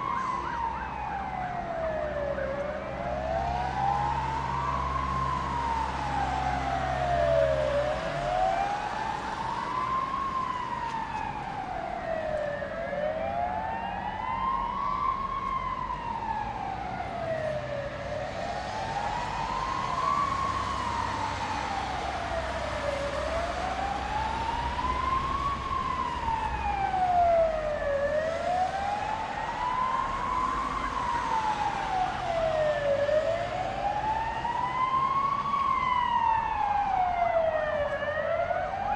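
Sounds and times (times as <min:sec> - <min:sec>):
siren wailing: 0:00.0 - 0:38.9.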